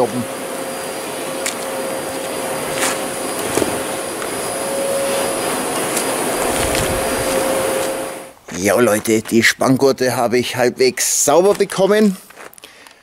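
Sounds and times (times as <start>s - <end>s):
vacuum cleaner running: 0.0s - 8.4s.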